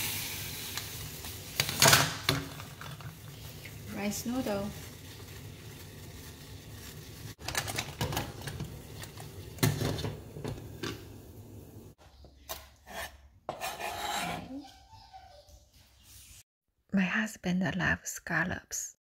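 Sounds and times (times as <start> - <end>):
gas stove hiss: 0.0 - 2.2.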